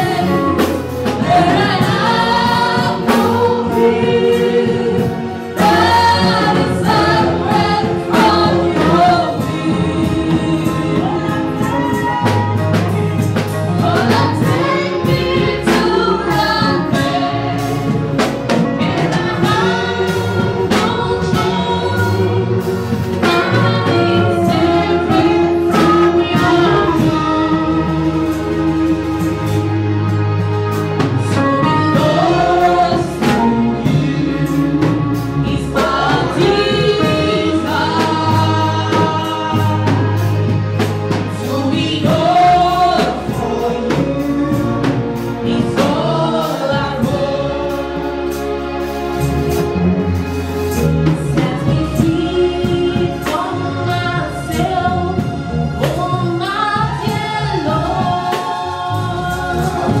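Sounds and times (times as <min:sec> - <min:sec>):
amplified band playing: 0:00.0 - 1:00.0
sustained bass notes: 0:00.0 - 1:00.0
woman singing into microphone: 0:18.5 - 0:29.5, 0:51.3 - 1:00.0.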